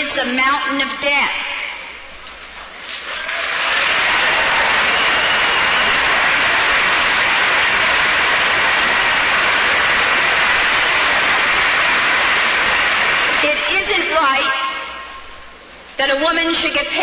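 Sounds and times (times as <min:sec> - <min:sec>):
crowd applauding: 0:02.6 - 0:14.1.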